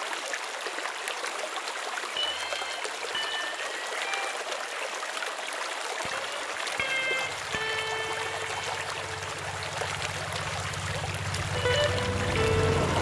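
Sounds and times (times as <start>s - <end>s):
faint high held tones: 2.2s - 4.6s, 6.1s - 9.4s, 11.5s - 13.0s.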